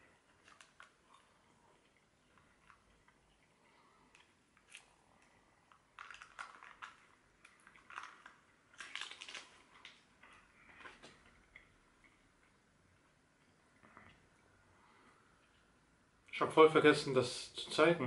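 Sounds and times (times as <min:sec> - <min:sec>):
chewing crunchy food: 0:00.1 - 0:12.6.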